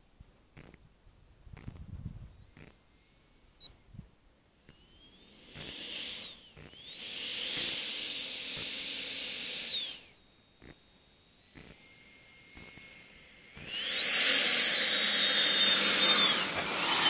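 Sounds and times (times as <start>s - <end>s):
model jet engine whining: 1.7s - 17.0s.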